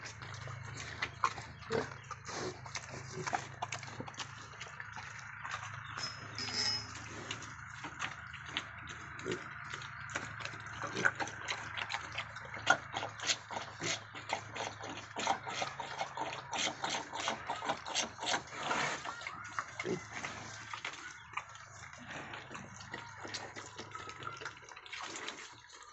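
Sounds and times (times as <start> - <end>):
trotters clicking on concrete: 0.1 - 18.5.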